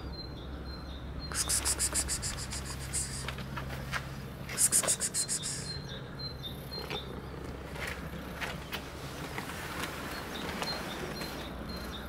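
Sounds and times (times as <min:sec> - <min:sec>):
low rumble of distant traffic: 0:00.0 - 0:12.0
high insect chirps: 0:01.3 - 0:03.4, 0:04.6 - 0:05.8.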